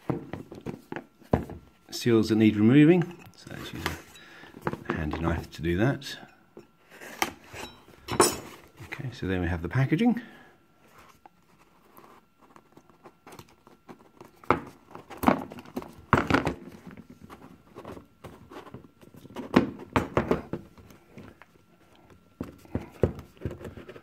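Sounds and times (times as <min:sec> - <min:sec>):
cardboard box knocking on table: 0:00.0 - 0:01.6
box thumps: 0:00.0 - 0:01.7, 0:19.3 - 0:20.7.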